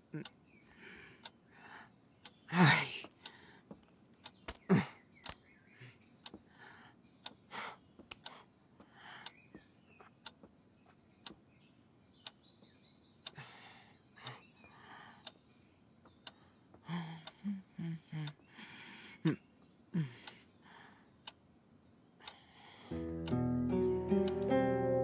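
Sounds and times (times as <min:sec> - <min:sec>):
woman breathing agitatedly: 0:05.8 - 0:09.4, 0:16.3 - 0:19.3, 0:22.3 - 0:23.0
woman gasping: 0:16.8 - 0:19.4.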